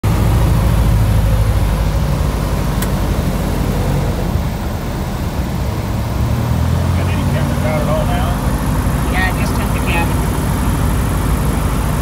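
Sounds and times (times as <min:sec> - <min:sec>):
small plane engine droning: 0:00.0 - 0:12.0.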